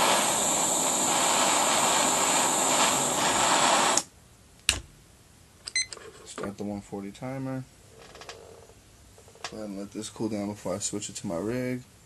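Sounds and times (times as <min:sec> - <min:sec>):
torch flame hissing: 0:00.0 - 0:04.1.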